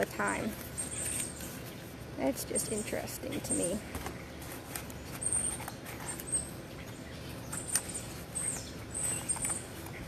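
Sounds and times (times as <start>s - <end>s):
small birds chirping: 0.0s - 10.0s
clicks and rustles of handling: 3.4s - 6.4s.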